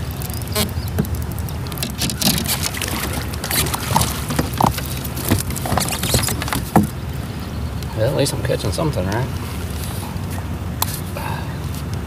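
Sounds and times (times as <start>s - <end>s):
fish splashing at surface: 1.5s - 7.0s
knocks against plastic hull: 1.8s - 7.0s.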